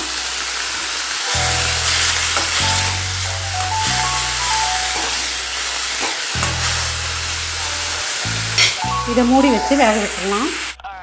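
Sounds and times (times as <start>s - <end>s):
cabbage sizzling in a pan: 0.0s - 10.8s
background music: 0.0s - 11.0s
spoon stirring in a pan: 4.4s - 6.9s.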